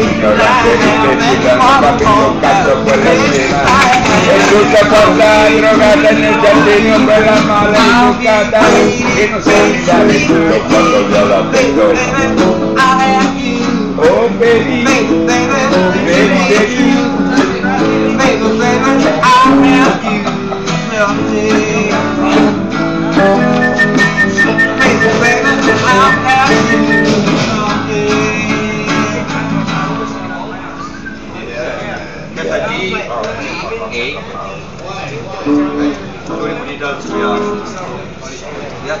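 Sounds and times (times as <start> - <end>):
electric guitar playing: 21.6 - 27.9.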